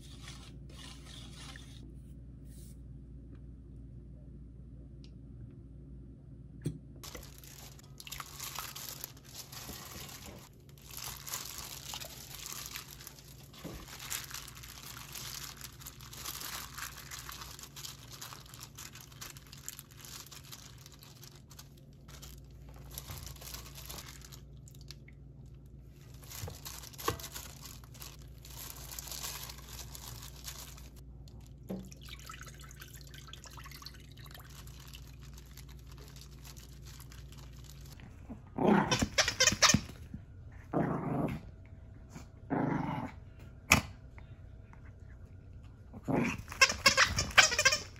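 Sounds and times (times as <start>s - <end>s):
plastic glove crinkling: 7.0s - 31.8s, 33.6s - 38.0s, 46.4s - 47.9s.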